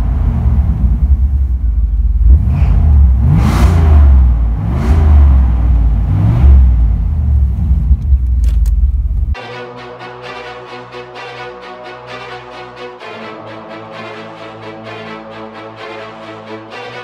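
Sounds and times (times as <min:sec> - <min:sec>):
car engine revving: 0:00.0 - 0:09.4.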